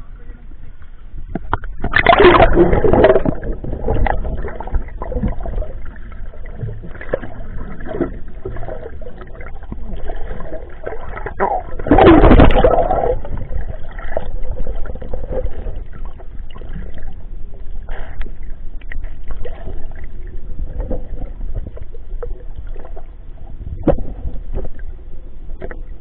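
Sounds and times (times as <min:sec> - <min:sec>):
rush of water: 0:01.3 - 0:18.3
seawater sloshing and gurgling: 0:01.3 - 0:26.0.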